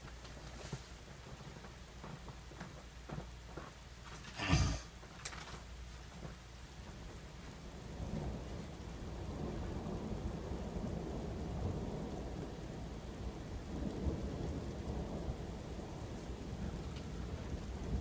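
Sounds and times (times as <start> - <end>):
steady rain: 0.0 - 18.0
thunder rumbling: 7.1 - 18.0.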